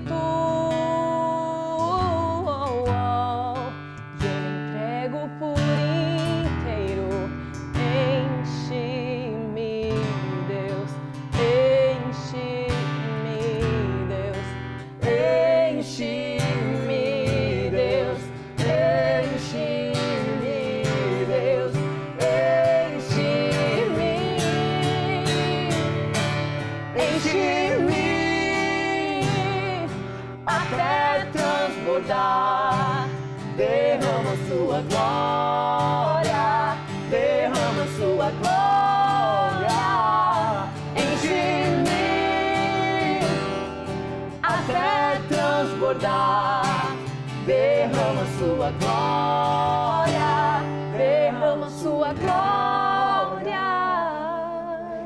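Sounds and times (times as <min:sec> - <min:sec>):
acoustic guitar strumming: 0:00.0 - 0:55.0
people singing a worship song: 0:13.6 - 0:55.0.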